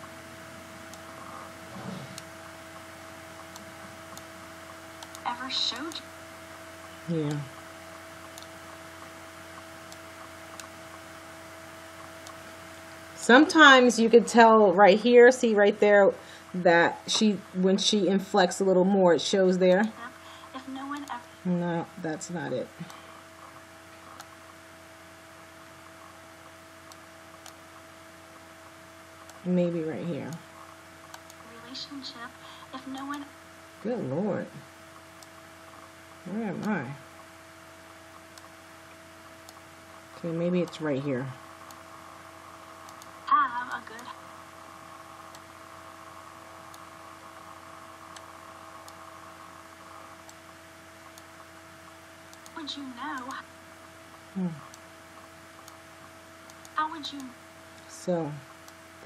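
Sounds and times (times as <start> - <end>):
faint electrical hum and hiss: 0.0 - 59.0
computer mouse clicks: 3.4 - 4.3, 5.0 - 6.0, 7.3 - 10.7, 20.9 - 21.2, 22.8 - 24.5, 26.9 - 27.6, 31.0 - 31.5, 38.2 - 38.6, 42.9 - 43.1, 45.3 - 45.5, 52.3 - 53.4, 54.6 - 56.8.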